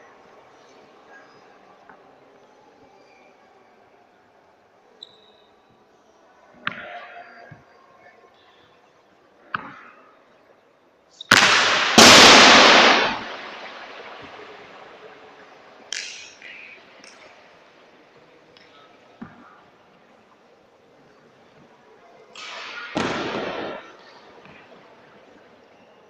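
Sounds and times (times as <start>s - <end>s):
loud crash: 11.3s - 15.0s, 22.4s - 24.0s.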